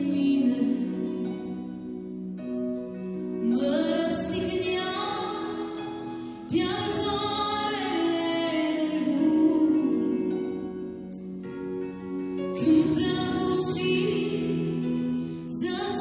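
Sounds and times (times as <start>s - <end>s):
woman singing: 0.0s - 2.3s, 3.3s - 16.0s
electric keyboard chords: 0.0s - 16.0s.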